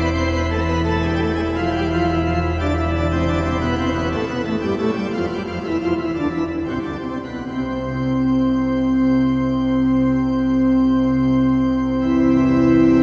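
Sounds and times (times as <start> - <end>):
sustained organ chords: 0.0 - 13.0.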